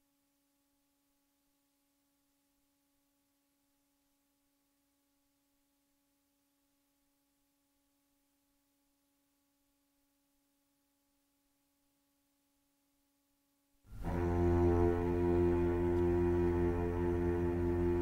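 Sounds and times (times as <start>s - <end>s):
faint steady hum: 0.0s - 18.0s
music with low sustained notes: 13.9s - 18.0s.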